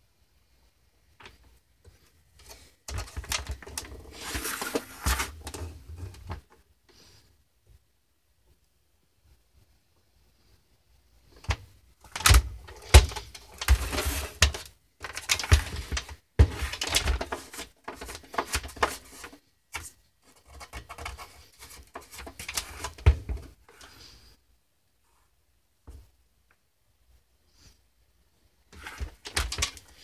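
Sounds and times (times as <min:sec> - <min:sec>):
plastic case knocks and scraping: 0:11.4 - 0:19.3, 0:20.7 - 0:23.6, 0:28.8 - 0:30.0.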